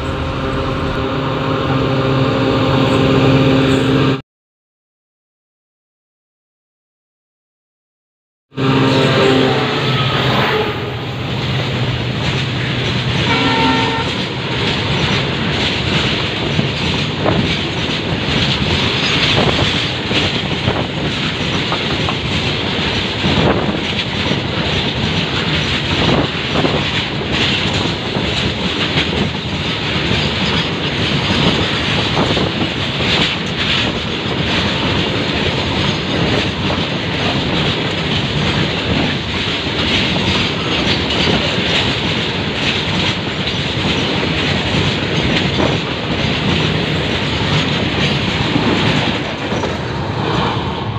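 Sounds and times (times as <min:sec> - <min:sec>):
train wheels rushing on rails: 0:00.0 - 0:04.2, 0:08.6 - 0:50.9
wheels clattering over rail joints: 0:11.6 - 0:50.9.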